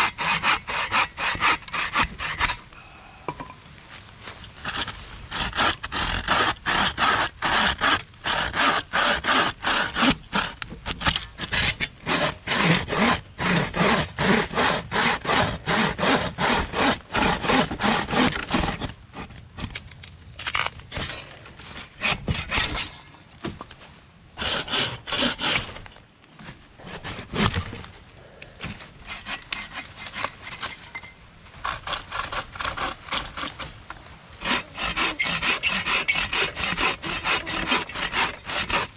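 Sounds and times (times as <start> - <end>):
bucksaw cutting log: 0.0 - 2.6, 4.6 - 19.4, 22.0 - 22.9, 24.4 - 26.0, 26.8 - 27.9, 31.6 - 33.8, 34.4 - 38.9.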